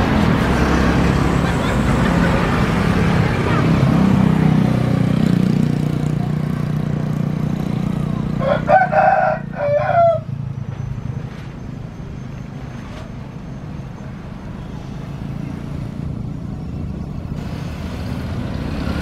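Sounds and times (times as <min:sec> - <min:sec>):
rooster crowing: 0:08.3 - 0:10.4.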